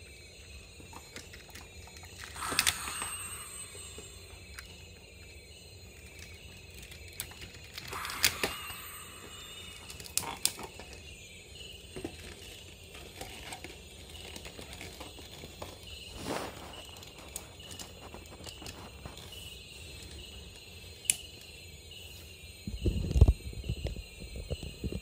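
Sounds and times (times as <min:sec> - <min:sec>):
faint rapid chirping: 0:00.0 - 0:25.0
toy parts clicking and knocking: 0:00.8 - 0:05.2, 0:05.9 - 0:11.1, 0:11.8 - 0:15.9.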